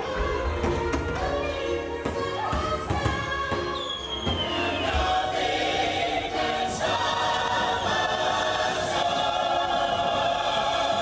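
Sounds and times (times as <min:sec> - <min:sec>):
choir singing held chords: 0:00.0 - 0:11.0.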